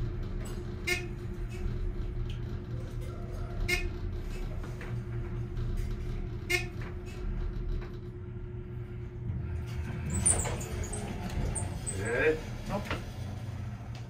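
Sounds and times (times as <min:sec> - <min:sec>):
elevator low hum: 0:00.0 - 0:14.0.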